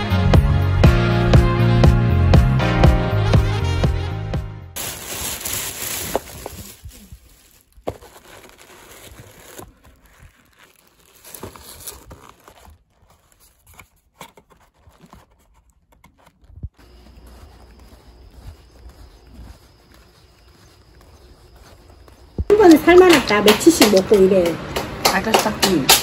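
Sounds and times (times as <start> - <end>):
box and wrapping rustling: 4.8 - 23.2.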